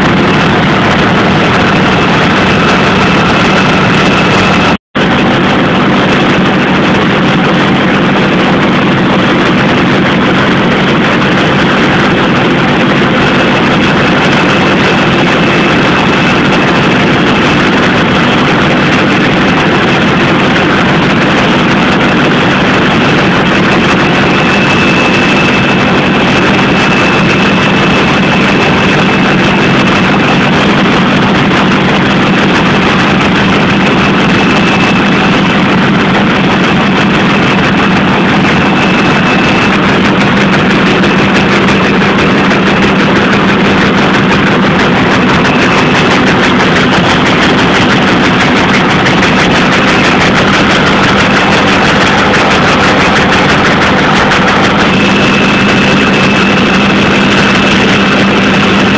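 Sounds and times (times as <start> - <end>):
high whine: 0.0 - 58.9
printing press mechanical din: 0.0 - 58.9.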